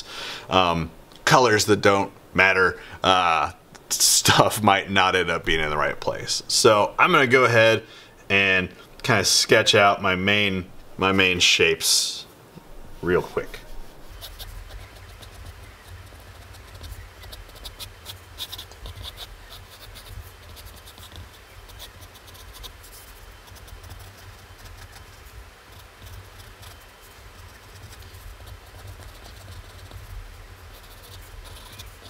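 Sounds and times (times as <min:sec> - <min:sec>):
pencil scratching on paper: 0:13.6 - 0:32.0.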